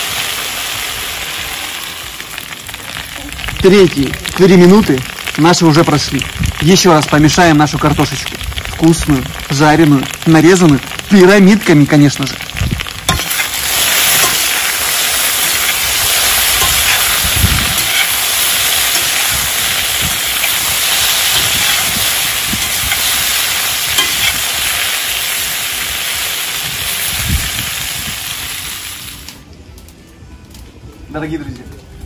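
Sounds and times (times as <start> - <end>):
potatoes sizzling in hot fat: 0.0 - 29.4
metal spatula stirring: 13.1 - 24.5.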